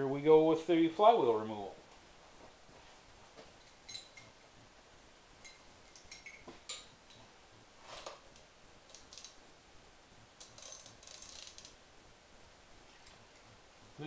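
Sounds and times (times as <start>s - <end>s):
metal hand tools clinking: 3.6s - 4.4s, 5.4s - 7.2s.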